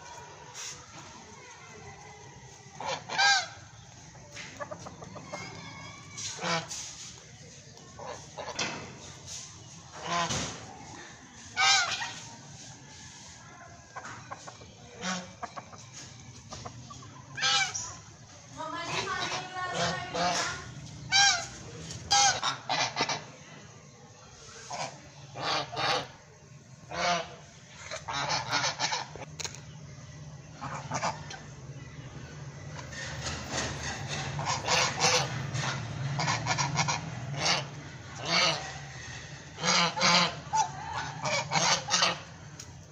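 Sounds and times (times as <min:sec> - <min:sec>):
geese soft clucking calls: 0:00.0 - 0:29.8, 0:30.5 - 0:32.0, 0:32.6 - 0:42.9
goose honking: 0:02.8 - 0:03.6, 0:06.2 - 0:06.9, 0:09.9 - 0:10.5, 0:11.6 - 0:12.2, 0:15.0 - 0:15.5, 0:17.4 - 0:17.9, 0:18.8 - 0:21.5, 0:22.1 - 0:23.4, 0:24.7 - 0:26.2, 0:26.9 - 0:29.3, 0:30.6 - 0:31.2, 0:34.1 - 0:42.4.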